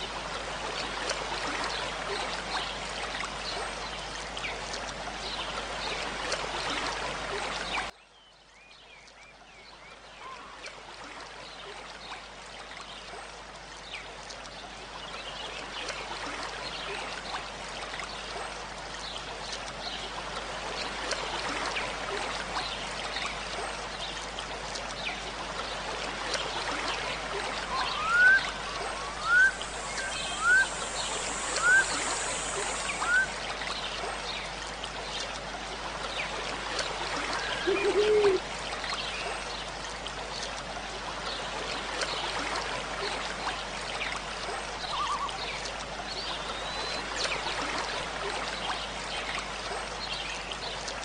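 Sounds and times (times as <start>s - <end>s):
running water rushing: 0.0s - 7.9s, 10.2s - 51.0s
bird short rising chirps: 27.7s - 33.3s.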